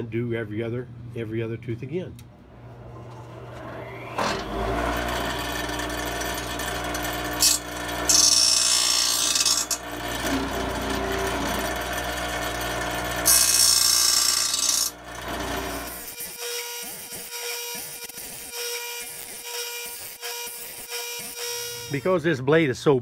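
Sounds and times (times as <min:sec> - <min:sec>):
motor hum: 0:02.2 - 0:16.1
grinding wheel hissing grind: 0:03.2 - 0:16.1.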